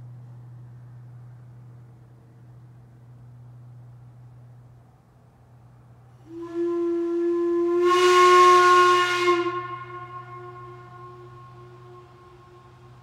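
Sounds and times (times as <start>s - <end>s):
steam whistle blowing: 6.2s - 13.0s.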